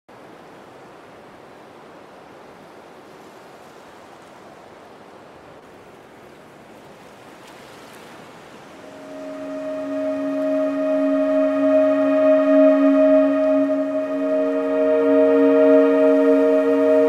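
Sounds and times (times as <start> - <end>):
waves breaking on shore: 0.3 - 12.1.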